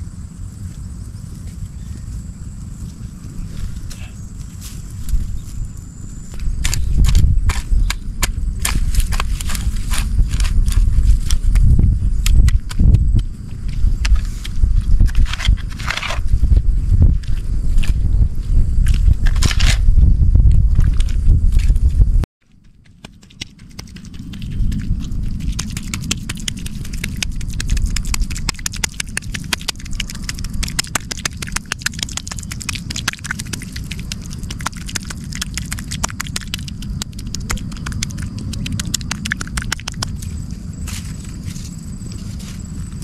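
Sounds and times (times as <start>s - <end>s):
low rumble: 0.0s - 22.3s, 23.7s - 43.0s
crackling and clicking of wet mud: 6.3s - 16.2s, 22.5s - 41.1s.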